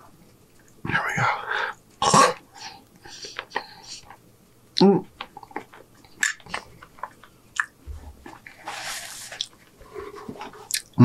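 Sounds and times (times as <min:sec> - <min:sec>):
chewing food: 0:04.0 - 0:08.6, 0:09.3 - 0:11.0
paper napkin rustling: 0:08.0 - 0:10.7
mouth clicks: 0:10.7 - 0:11.0.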